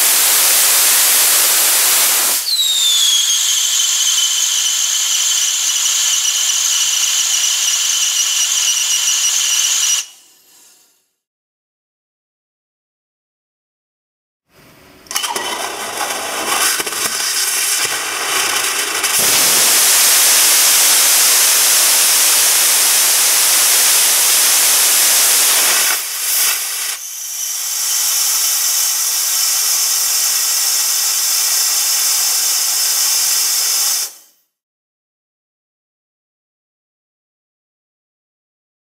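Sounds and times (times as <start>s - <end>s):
high hiss of gas flow: 0.0s - 11.0s, 16.2s - 34.4s
rocket engine roaring hiss: 0.0s - 11.0s, 15.2s - 34.3s.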